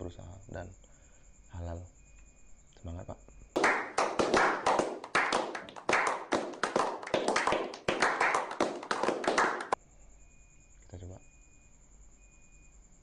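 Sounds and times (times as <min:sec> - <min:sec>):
group of people clapping: 0:03.6 - 0:09.8.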